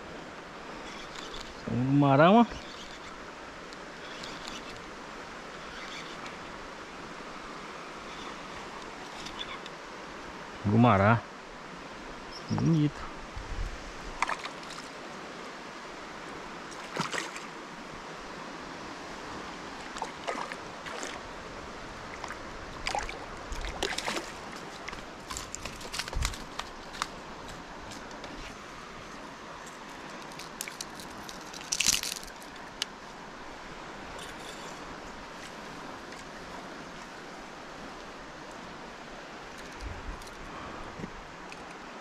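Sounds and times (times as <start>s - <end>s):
river water flowing: 0.0s - 42.0s
crackling crunching clicks: 30.2s - 32.9s.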